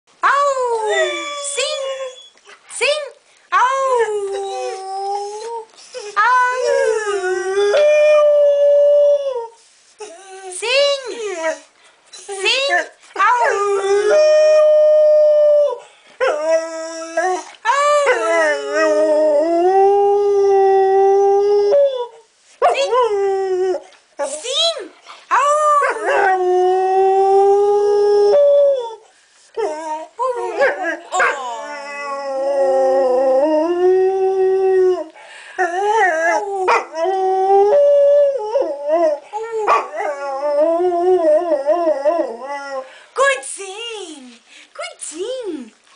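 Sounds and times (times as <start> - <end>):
dog howling: 29.6 - 35.1.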